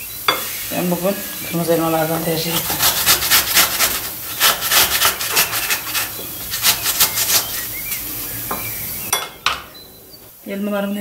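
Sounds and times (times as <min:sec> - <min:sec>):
apple scraping on metal grater: 0:02.1 - 0:08.0.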